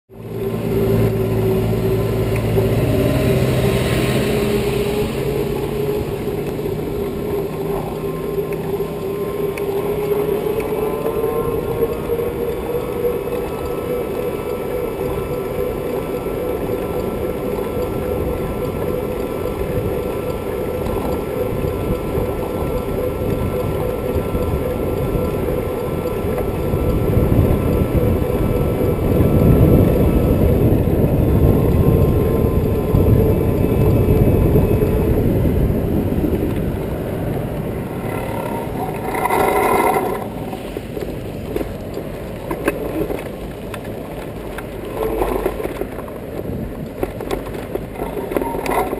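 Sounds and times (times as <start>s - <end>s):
cars passing: 0.1s - 48.9s
electric bike motor whine: 0.1s - 48.9s
wind on microphone: 0.2s - 48.9s
short pitched tone: 37.8s - 40.6s.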